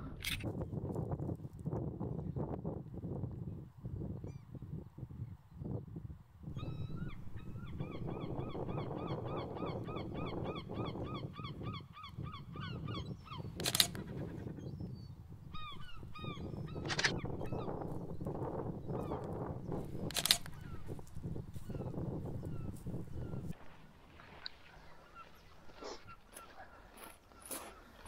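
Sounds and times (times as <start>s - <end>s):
sharp click: 0.2s - 0.5s, 13.6s - 14.2s, 16.8s - 17.6s, 20.0s - 20.7s.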